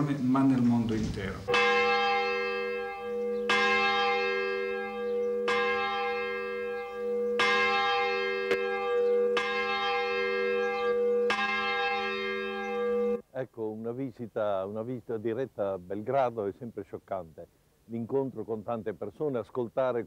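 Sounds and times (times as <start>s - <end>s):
large bell ringing: 1.5s - 13.2s.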